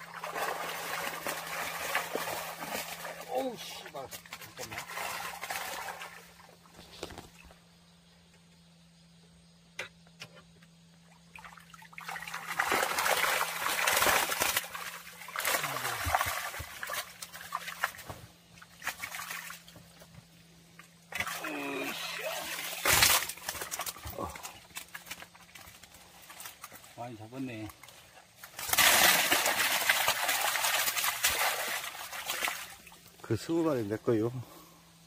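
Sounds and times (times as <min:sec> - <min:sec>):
water streaming off net: 0:00.0 - 0:06.4, 0:11.4 - 0:18.0, 0:21.1 - 0:24.0, 0:28.6 - 0:33.0.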